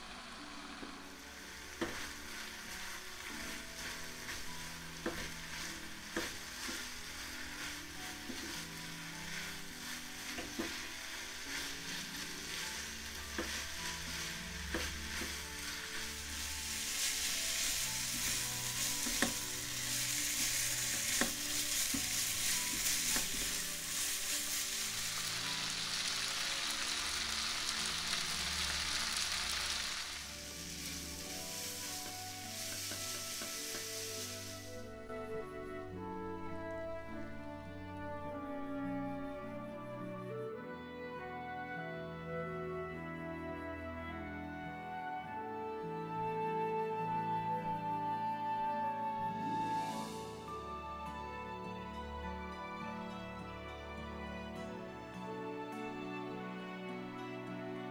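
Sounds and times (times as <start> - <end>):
food sizzling in a pan: 0.0 - 34.9, 49.4 - 50.6
spatula stirring food: 1.3 - 26.2, 29.1 - 34.7.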